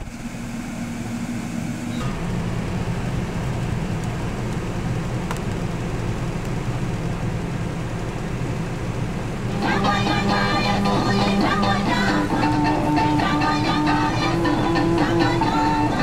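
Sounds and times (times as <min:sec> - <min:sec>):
car engine running: 0:00.0 - 0:16.0
music: 0:09.5 - 0:16.0.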